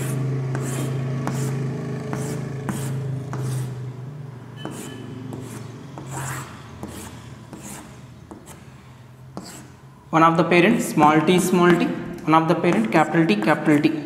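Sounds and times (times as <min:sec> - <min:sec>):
chalk scraping on blackboard: 0:00.0 - 0:03.8, 0:04.6 - 0:09.9.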